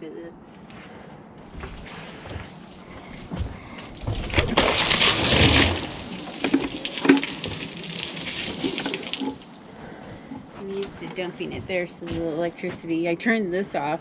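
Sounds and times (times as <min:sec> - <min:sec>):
water splashing on wooden deck: 0:02.7 - 0:09.7.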